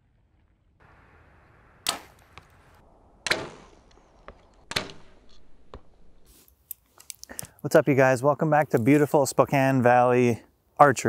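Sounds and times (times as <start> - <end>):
bow string cracks: 1.8 - 7.6.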